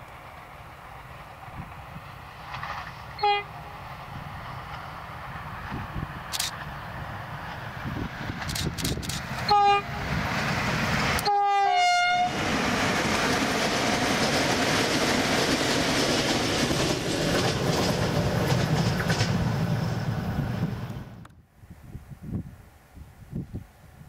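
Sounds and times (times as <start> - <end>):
train passing with rail noise: 0.0 - 24.0
train horn blasts: 3.2 - 3.6, 9.4 - 10.1, 11.2 - 12.4.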